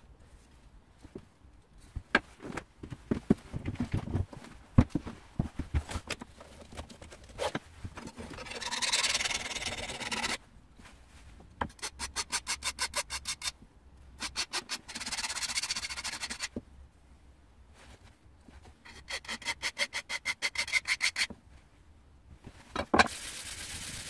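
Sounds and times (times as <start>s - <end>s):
knife scraping on sharpener: 8.3s - 10.4s, 11.8s - 13.5s, 18.9s - 21.3s.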